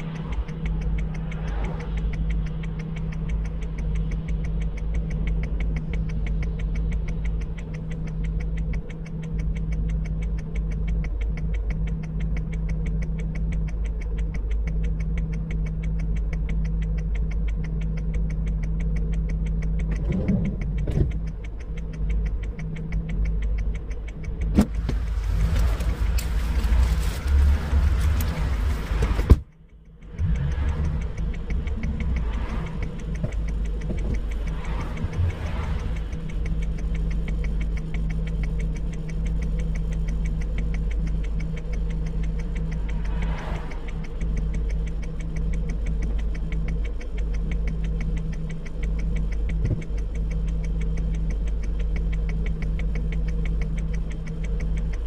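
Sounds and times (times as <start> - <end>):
engine idling with ticking: 0.0 - 55.0
rushing noise: 24.6 - 29.4, 30.1 - 36.6, 42.7 - 44.6.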